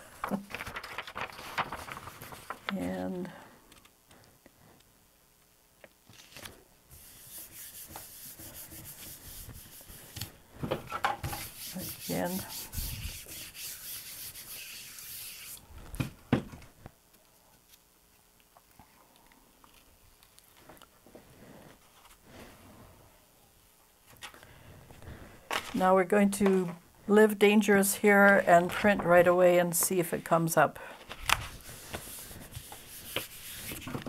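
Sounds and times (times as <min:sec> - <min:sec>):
baren rubbing paper: 0:00.6 - 0:02.7, 0:06.9 - 0:10.3, 0:11.3 - 0:15.6, 0:31.3 - 0:34.0.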